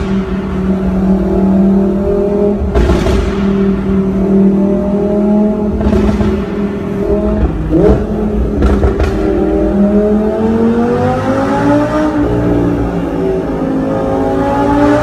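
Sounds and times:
sports car engine revving: 0.0 - 15.0
exhaust cracks: 2.6 - 3.9, 5.7 - 9.4.

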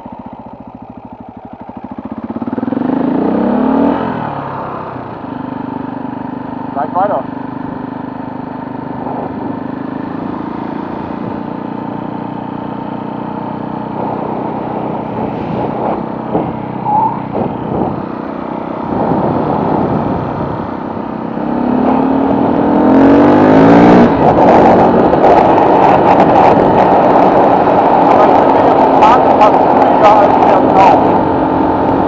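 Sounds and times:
motorcycle engine revving: 0.0 - 32.0
wind noise on microphone: 14.0 - 32.0.

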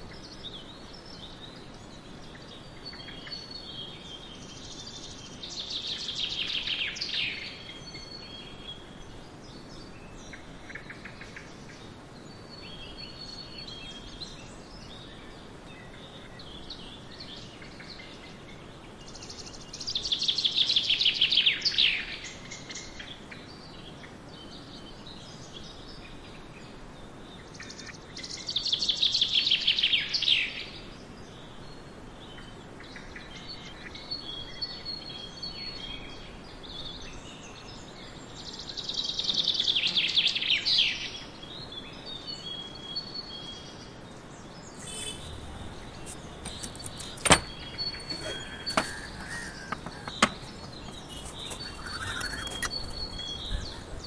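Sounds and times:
faint bird chirps: 44.8 - 54.0
outdoor hiss: 44.8 - 54.0.

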